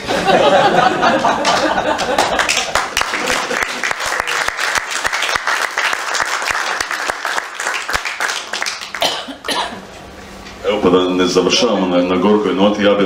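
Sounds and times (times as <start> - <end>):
audience applauding: 1.2 - 9.5.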